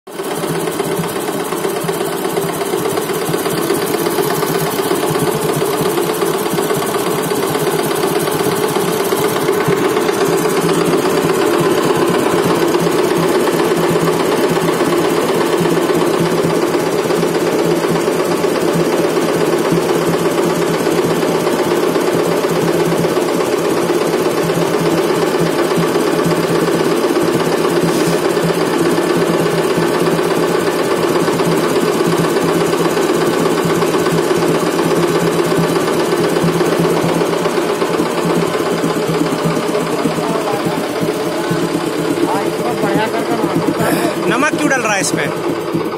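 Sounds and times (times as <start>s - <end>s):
tractor engine and burner chatter: 26.9s - 30.8s, 37.4s - 45.9s.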